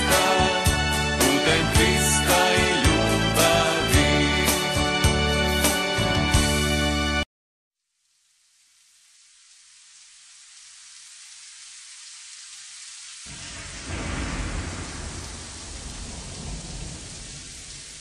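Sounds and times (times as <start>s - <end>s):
wind noise on microphone: 13.3s - 18.0s.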